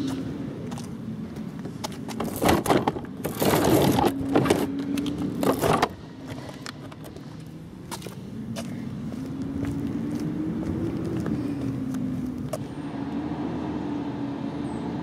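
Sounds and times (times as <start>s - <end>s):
cart wheels rattling on concrete: 2.1s - 4.7s.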